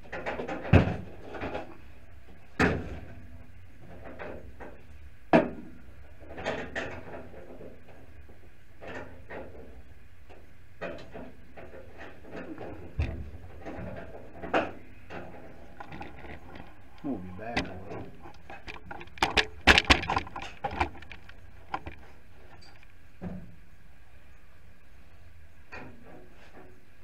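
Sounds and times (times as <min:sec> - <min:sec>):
tools clunking and clicking: 0:10.3 - 0:23.4
sharp knocks: 0:17.5 - 0:22.0.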